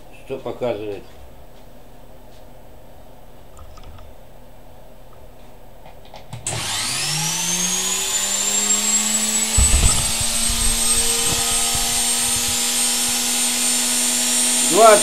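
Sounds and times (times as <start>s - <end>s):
electric motor whine: 6.5s - 15.0s
low knocks: 9.5s - 13.6s.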